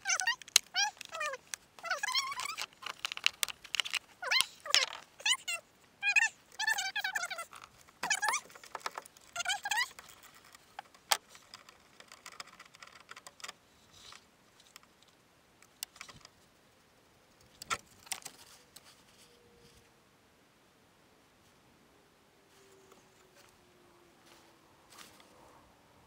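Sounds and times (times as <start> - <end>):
dog whining: 0.0 - 2.6, 4.2 - 8.5
metallic clicks and rattles of tools: 0.1 - 5.4, 7.4 - 16.3.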